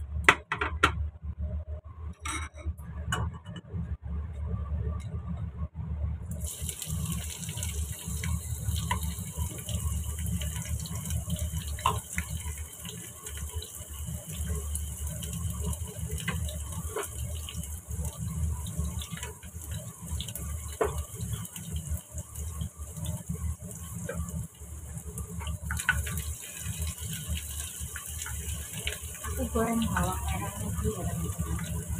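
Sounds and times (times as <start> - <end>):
shallots sizzling in hot oil: 6.3 - 31.9.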